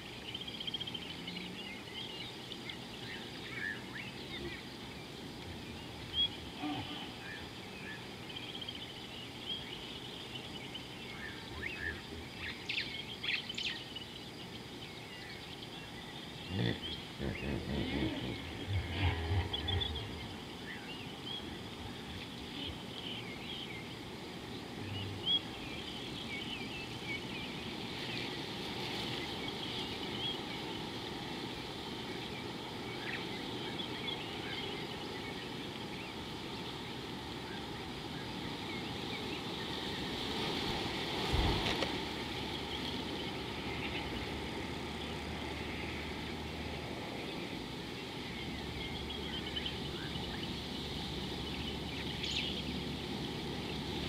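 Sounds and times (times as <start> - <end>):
birds chirping: 0.0 - 28.6, 41.8 - 54.0
outdoor background hiss: 0.0 - 54.0.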